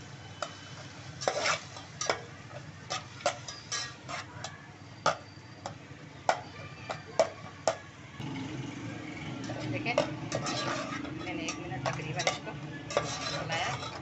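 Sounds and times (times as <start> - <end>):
chicken frying: 0.0 - 14.0
metal spoon scraping steel pot: 1.2 - 2.2, 2.9 - 7.1, 9.1 - 14.0.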